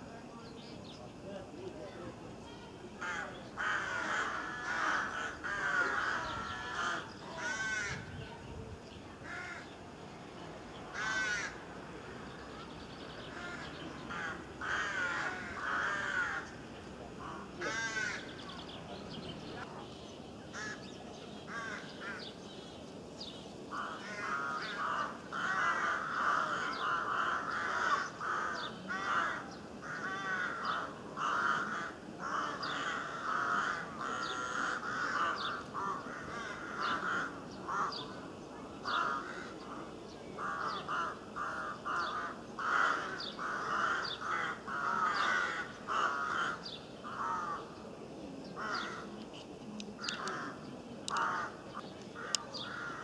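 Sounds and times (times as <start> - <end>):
songbirds chirping: 0.0 - 53.0
harsh crow-like cawing: 3.0 - 8.1, 9.2 - 9.7, 10.9 - 11.6, 13.3 - 16.5, 17.2 - 18.3, 20.5 - 20.9, 21.5 - 22.3, 23.7 - 38.2, 40.4 - 47.7, 52.2 - 53.0.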